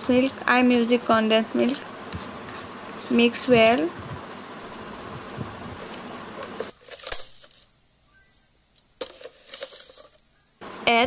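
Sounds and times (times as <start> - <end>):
steady hiss: 0.0 - 11.0
spoon stirring thick mixture: 0.7 - 6.8.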